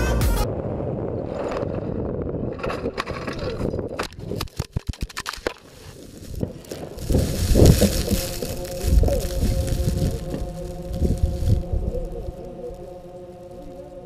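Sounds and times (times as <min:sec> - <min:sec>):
rushing rumble: 0:05.7 - 0:14.0.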